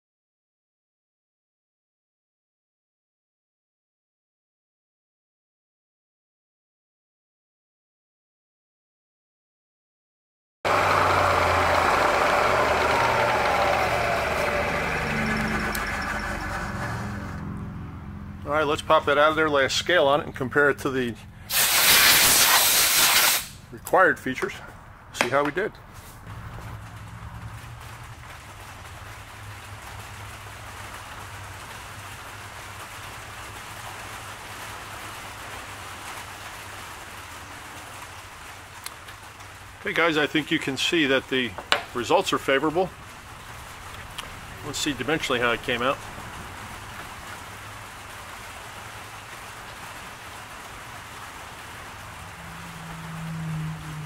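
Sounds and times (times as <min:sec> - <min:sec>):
milling machine cutting metal: 0:10.7 - 0:17.4
steady hiss: 0:21.5 - 0:23.6
low hum: 0:51.9 - 0:54.0.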